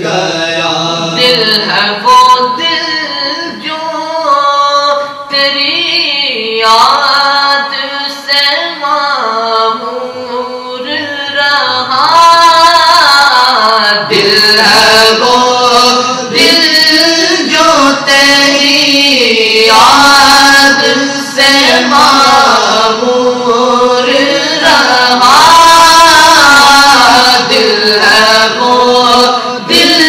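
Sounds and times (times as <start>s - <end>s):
male voices singing unaccompanied: 0.0s - 3.7s, 11.8s - 30.0s.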